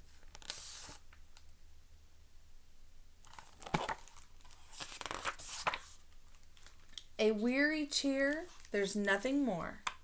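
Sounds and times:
book pages rustling: 0.1s - 1.0s, 3.2s - 7.0s.

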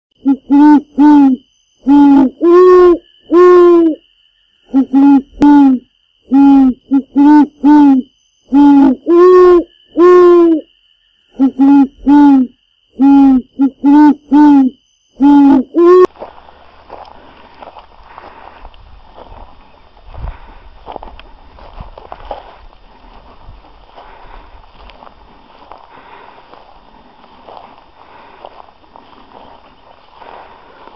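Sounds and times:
owl-like hooting: 0.2s - 4.0s, 4.6s - 10.7s, 11.3s - 16.1s
faint background noise: 0.2s - 30.9s.

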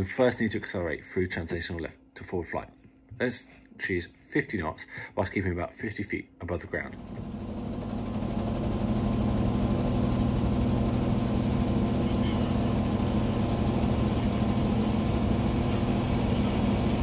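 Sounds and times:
helicopter engine and rotors drone: 6.9s - 17.0s.

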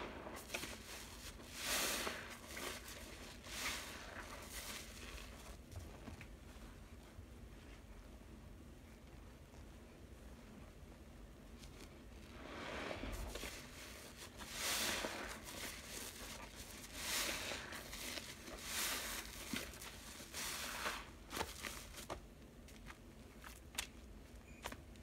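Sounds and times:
sponge squelching in soapy water: 0.0s - 7.9s, 11.6s - 22.3s.

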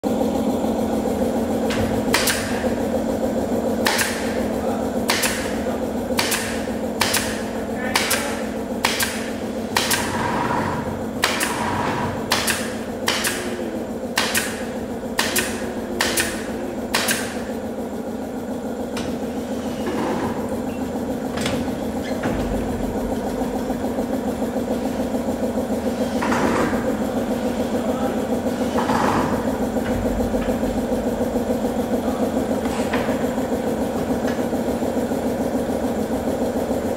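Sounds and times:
steady machine hum: 0.0s - 36.9s
nail gun firing into wood: 2.1s - 2.6s, 3.8s - 4.4s, 5.0s - 17.4s.

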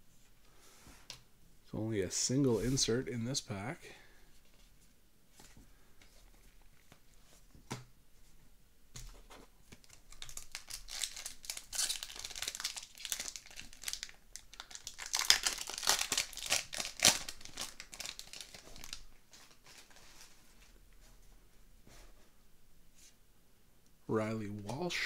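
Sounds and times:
foil wrapper crinkling: 9.8s - 20.0s.

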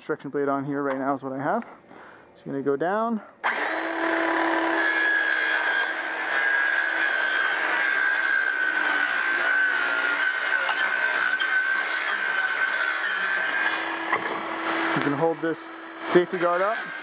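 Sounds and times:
circular saw cutting plastic: 3.4s - 17.0s.

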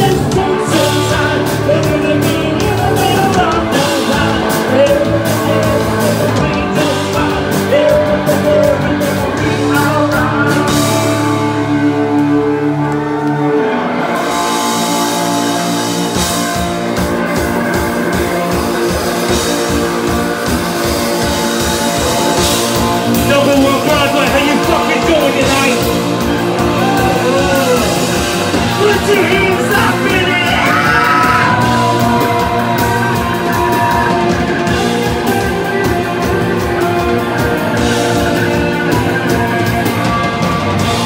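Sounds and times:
person singing: 0.0s - 13.8s, 23.1s - 41.0s
bass guitar: 0.0s - 41.0s
electric guitar: 0.0s - 41.0s.

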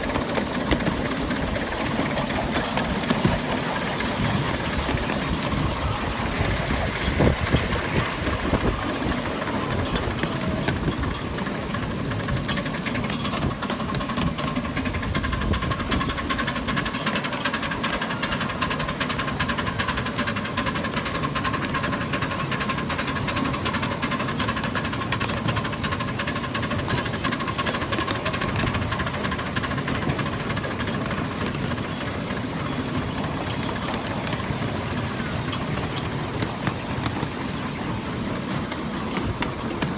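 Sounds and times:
steam locomotive exhaust beats: 0.0s - 39.9s
wheel clatter: 0.0s - 39.9s
steam hiss: 5.9s - 10.1s.

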